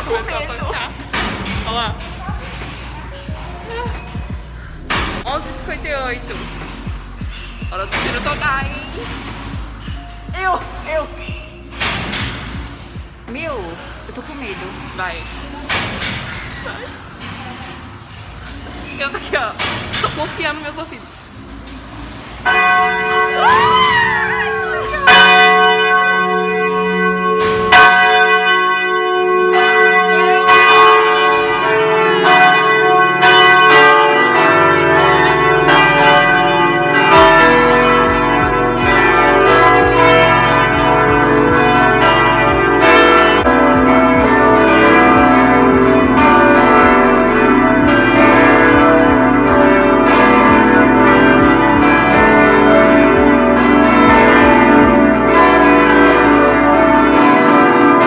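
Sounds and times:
carillon bells ringing: 0:22.4 - 0:58.0.

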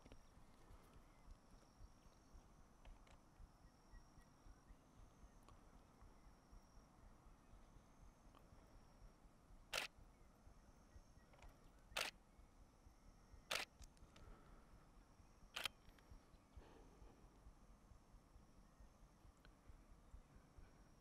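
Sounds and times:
camera shutter click: 0:09.7 - 0:09.9, 0:12.0 - 0:12.2, 0:13.5 - 0:13.9, 0:15.6 - 0:15.8.

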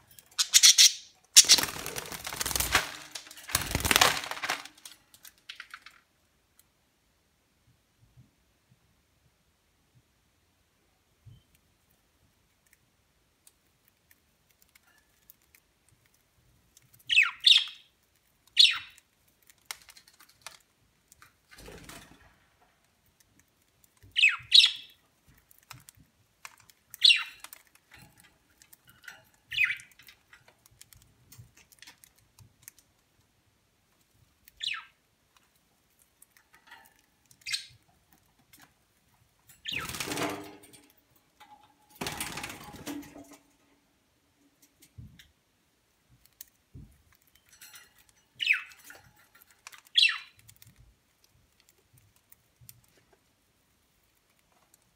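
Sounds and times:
rustling: 0:00.0 - 0:06.0
budgerigars chirping: 0:00.4 - 0:01.6
seeds cracking: 0:01.3 - 0:06.1, 0:17.9 - 0:21.6.

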